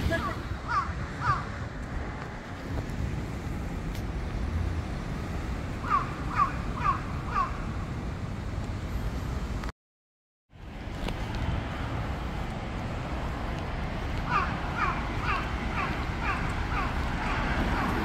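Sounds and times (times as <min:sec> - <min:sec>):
low traffic rumble: 0:00.0 - 0:09.7, 0:10.5 - 0:18.0
crow cawing: 0:00.7 - 0:01.5, 0:05.8 - 0:07.6, 0:14.2 - 0:17.9.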